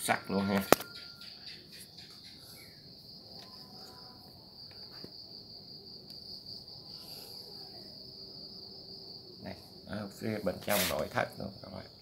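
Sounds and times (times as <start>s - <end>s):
crickets trilling: 0.0s - 12.0s.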